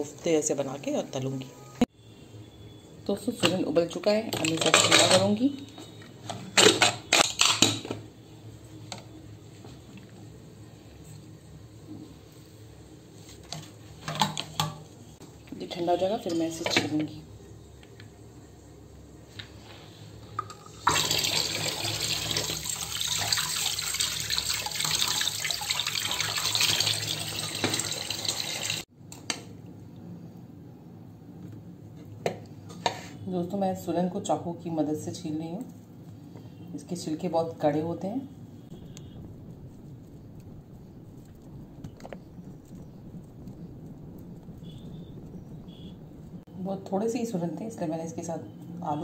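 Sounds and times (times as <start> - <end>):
tap water rushing: 20.4 - 28.8.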